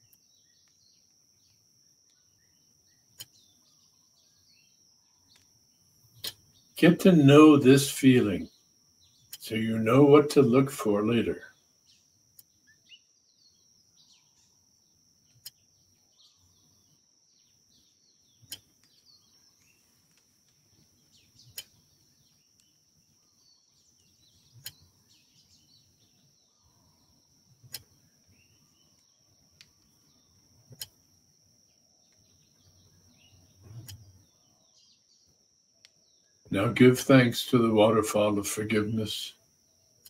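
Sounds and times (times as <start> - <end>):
soft clicks: 3.1 - 3.4, 15.3 - 15.6, 18.4 - 19.0, 24.5 - 24.9, 27.6 - 28.0, 29.0 - 30.0, 30.6 - 31.0, 33.6 - 34.2.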